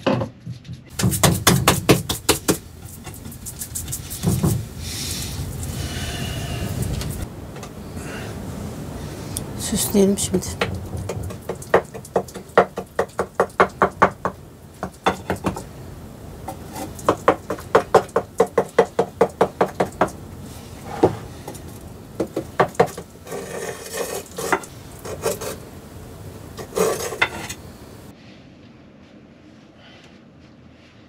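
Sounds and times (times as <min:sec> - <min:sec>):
utensil knocking on metal tray: 0:10.6 - 0:15.7
scraping on metal tray: 0:22.8 - 0:25.6, 0:26.6 - 0:27.6.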